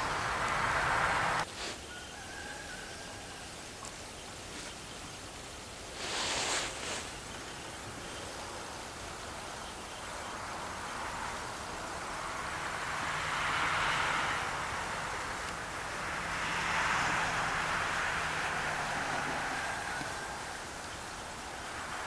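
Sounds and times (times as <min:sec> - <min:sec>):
hiss: 0:00.0 - 0:02.1, 0:05.4 - 0:09.4
short rustle: 0:05.9 - 0:07.2.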